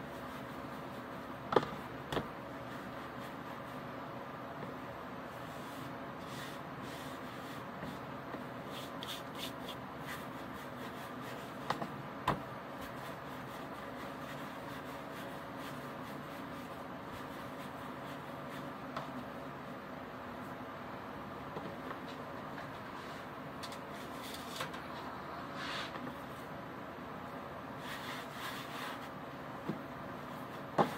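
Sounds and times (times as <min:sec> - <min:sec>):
hands rolling dough on stone: 0:27.8 - 0:30.9.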